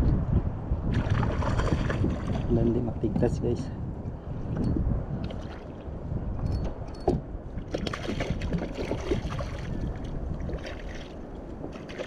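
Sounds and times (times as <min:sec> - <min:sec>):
wind on microphone: 0:00.0 - 0:12.0
water lapping: 0:07.5 - 0:12.0
small splashes: 0:07.7 - 0:12.0.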